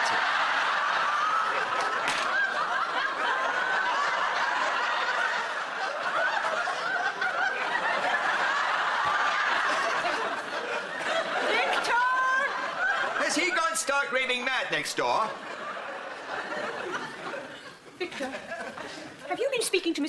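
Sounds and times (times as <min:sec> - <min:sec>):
audience laughing: 0:00.0 - 0:19.6.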